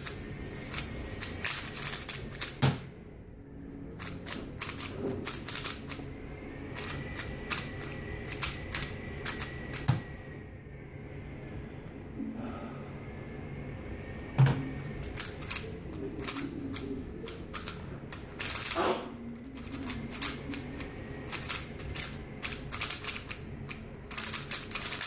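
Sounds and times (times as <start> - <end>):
plastic puzzle cube clicking: 0.0 - 2.6, 4.0 - 6.0, 6.8 - 10.0, 15.0 - 15.6, 16.2 - 18.8, 19.6 - 25.0.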